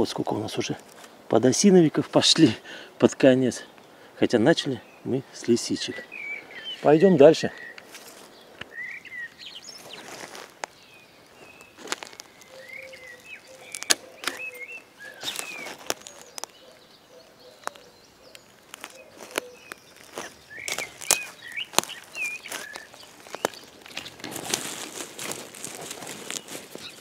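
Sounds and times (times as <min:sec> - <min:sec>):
rustling through dry lichen: 0:00.0 - 0:02.6, 0:05.4 - 0:27.0
small birds chirping: 0:00.0 - 0:27.0
footsteps on forest floor: 0:06.6 - 0:27.0
twigs cracking: 0:07.6 - 0:27.0.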